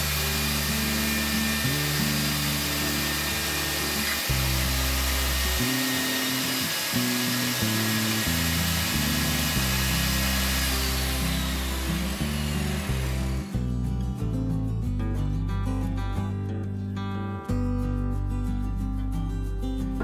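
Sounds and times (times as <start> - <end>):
table saw cutting wood: 0.0 - 13.6
background music: 0.0 - 20.0.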